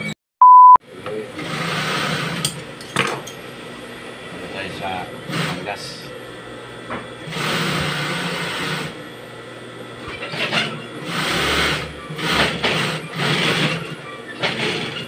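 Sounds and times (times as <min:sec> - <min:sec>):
sewing machine stitching: 0:10.2 - 0:15.0.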